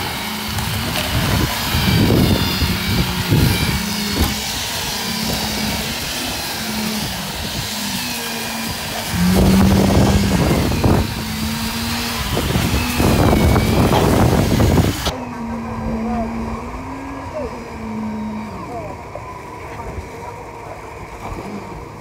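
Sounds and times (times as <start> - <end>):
pump engine running: 0.0 - 22.0.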